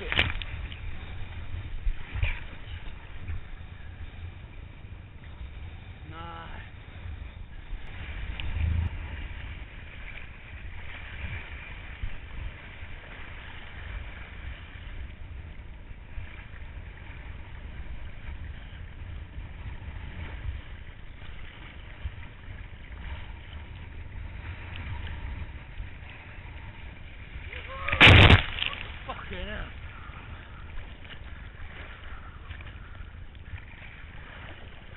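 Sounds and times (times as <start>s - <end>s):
water sloshing: 0.0s - 34.9s
wind buffeting microphone: 0.0s - 34.9s
loud splash burst: 27.8s - 29.1s.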